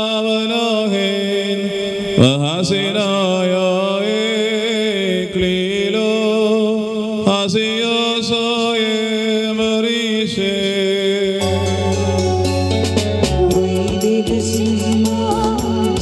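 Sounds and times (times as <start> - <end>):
man chanting into microphone: 0.0 - 11.7.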